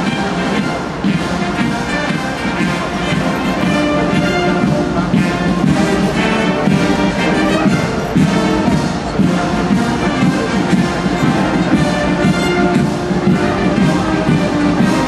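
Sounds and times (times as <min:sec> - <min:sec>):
brass band music: 0:00.0 - 0:15.0.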